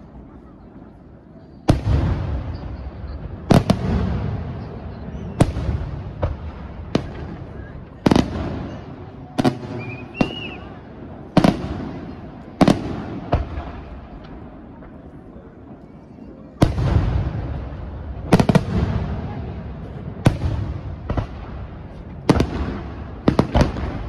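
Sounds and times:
rising firework whistle: 0:09.6 - 0:10.9.

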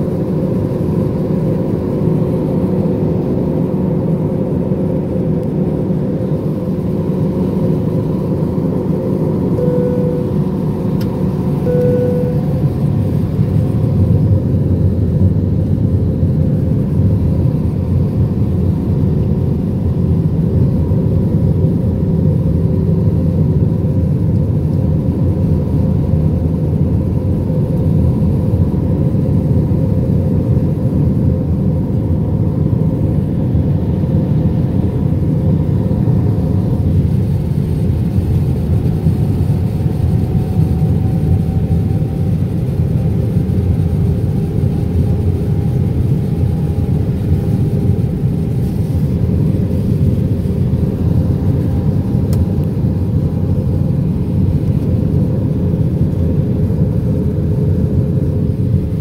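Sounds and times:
aircraft cabin engine roar: 0:00.0 - 0:59.0
faint steady hum: 0:03.9 - 0:22.0
short faint tone: 0:09.6 - 0:10.9, 0:11.6 - 0:12.8.

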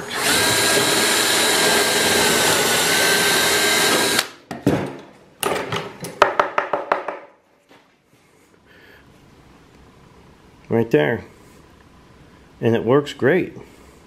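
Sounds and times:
power drill drilling into wood: 0:00.0 - 0:04.3
sharp knocks and taps: 0:06.1 - 0:07.3.

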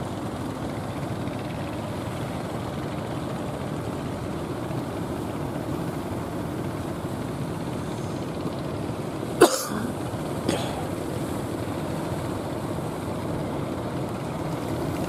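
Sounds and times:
boat engine humming: 0:00.0 - 0:15.0
sea wash: 0:10.0 - 0:15.0.

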